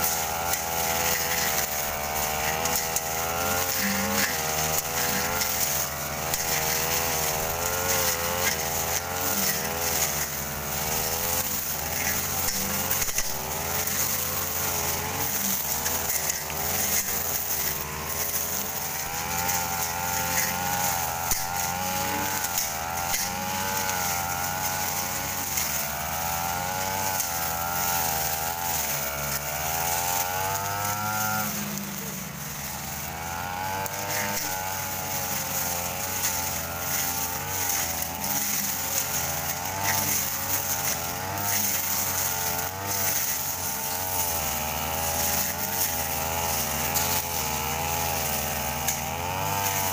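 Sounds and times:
brush cutters cutting undergrowth: 0.0s - 49.9s.

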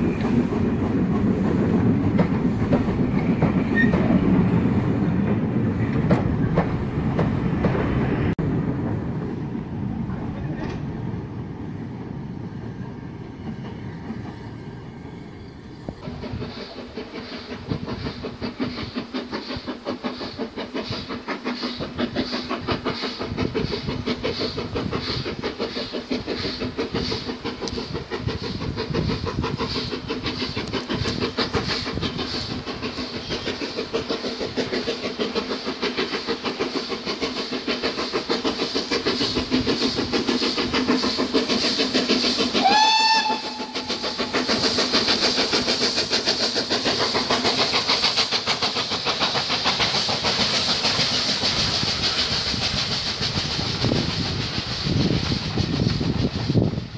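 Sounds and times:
steam locomotive chuffing: 0.0s - 56.9s.

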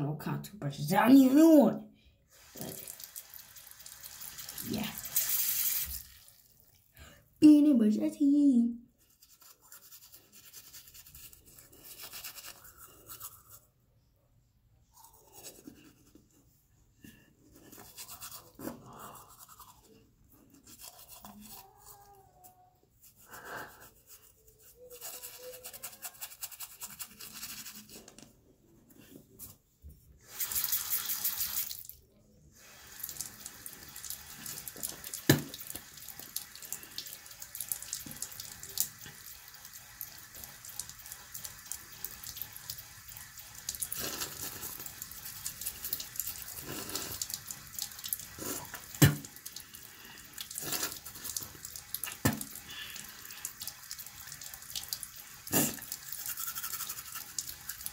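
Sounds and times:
toothbrush scrubbing teeth: 2.4s - 6.6s, 9.0s - 13.8s, 14.8s - 16.6s, 17.4s - 28.3s, 30.2s - 31.8s, 32.6s - 57.9s
faucet running into sink: 2.4s - 6.8s, 30.2s - 32.0s, 32.6s - 57.9s.

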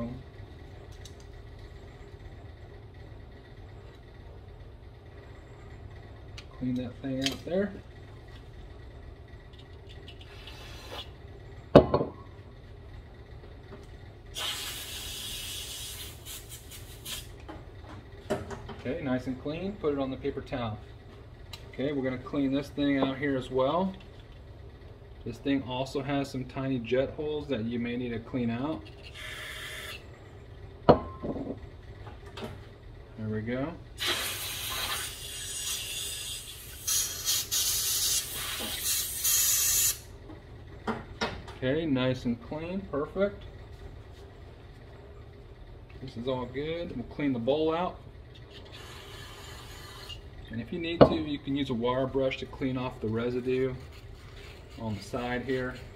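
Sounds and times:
compressed air blasts: 10.2s - 11.1s, 14.3s - 17.4s, 34.0s - 40.0s, 48.7s - 50.2s
compressed air hissing: 10.3s - 11.1s, 14.4s - 17.4s, 34.0s - 40.1s, 48.7s - 50.2s
aerosol spray hissing: 14.4s - 17.3s.

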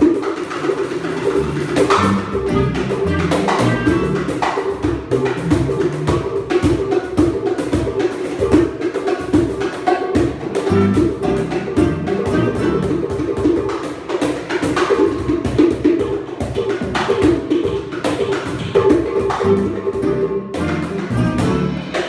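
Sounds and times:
plucked bass: 0.0s - 8.6s, 10.2s - 13.7s, 16.8s - 22.0s
cajon and percussion beat: 0.0s - 22.0s
guitar: 0.0s - 22.0s
clarinet melody: 1.1s - 6.9s, 10.4s - 13.6s, 18.8s - 22.0s.

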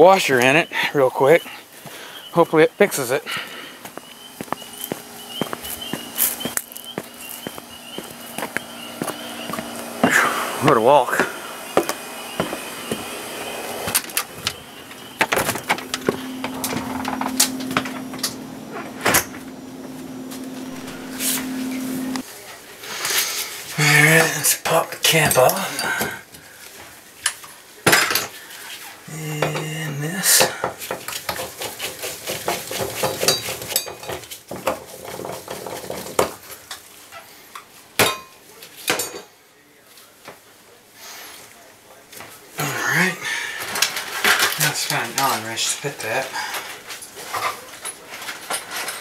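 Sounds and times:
steady low hum: 0.7s - 22.3s
metal clinking and scraping: 31.1s - 36.2s, 46.5s - 49.0s.

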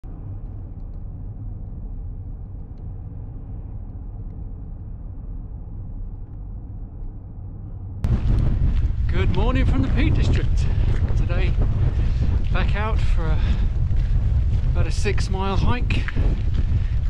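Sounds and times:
car engine and tyre rumble: 8.1s - 17.0s.

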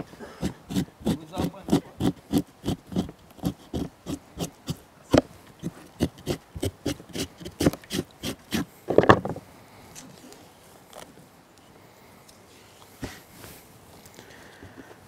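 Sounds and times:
knife scraping scaly skin: 0.0s - 8.7s.

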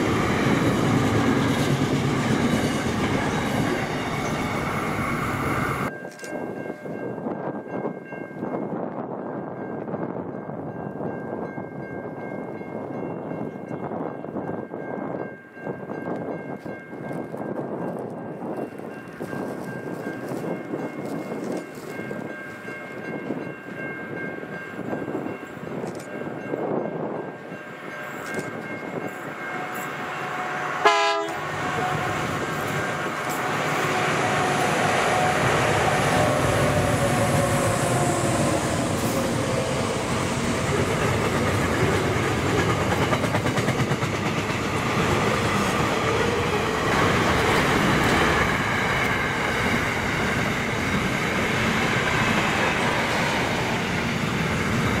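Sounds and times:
train wheels rolling on rails: 0.0s - 9.1s, 11.8s - 55.0s
train horn blast: 29.4s - 40.1s.

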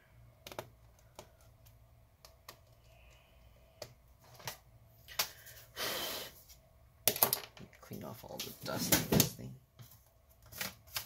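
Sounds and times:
clicks and taps handling laptop parts: 0.4s - 2.8s.

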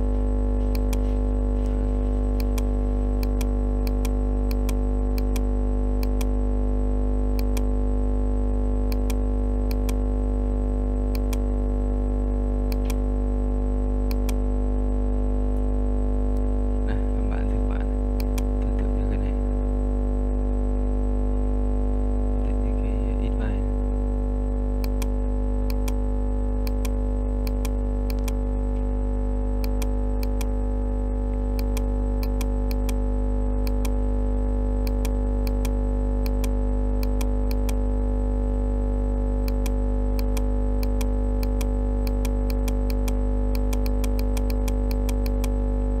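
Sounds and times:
electrical hum: 0.0s - 46.0s
sharp clicks: 0.7s - 1.1s, 2.4s - 6.3s, 7.3s - 7.7s, 8.9s - 10.0s, 11.1s - 11.5s, 12.7s - 13.0s, 14.1s - 14.4s, 18.2s - 18.9s, 24.8s - 26.0s, 26.6s - 28.9s, 29.6s - 30.6s, 31.3s - 33.0s, 33.6s - 34.0s, 34.8s - 37.8s, 39.4s - 45.6s.

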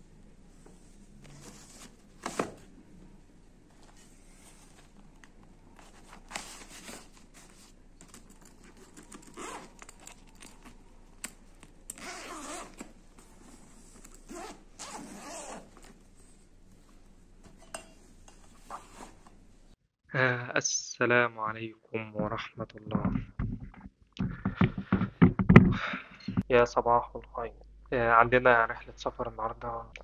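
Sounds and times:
backpack zippers being pulled: 8.6s - 10.6s, 11.9s - 12.9s, 14.1s - 15.9s.

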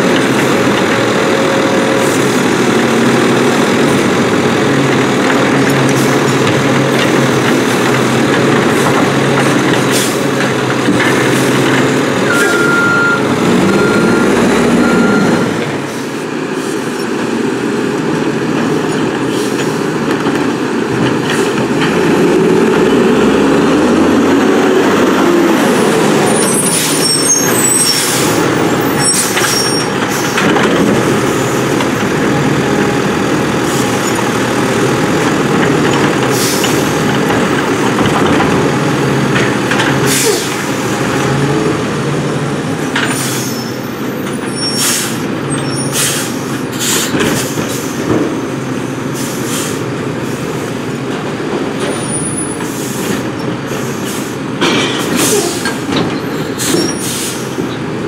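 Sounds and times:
garbage truck engine and hydraulics: 0.0s - 58.0s
air brake hissing: 40.1s - 40.5s, 44.7s - 45.2s, 45.8s - 48.0s, 49.2s - 50.4s, 55.0s - 55.8s, 56.6s - 57.6s.

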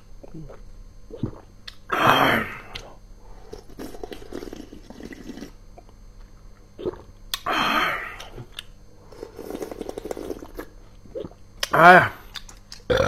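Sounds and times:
person slurping sauce: 3.4s - 5.6s, 9.1s - 11.4s
person chewing: 8.2s - 13.0s.

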